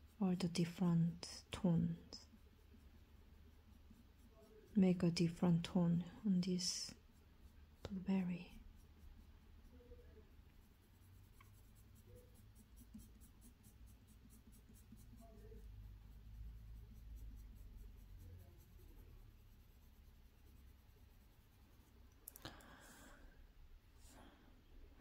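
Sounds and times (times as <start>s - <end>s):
pencil scratching on paper: 0.0s - 22.0s
low steady hum: 0.0s - 25.0s.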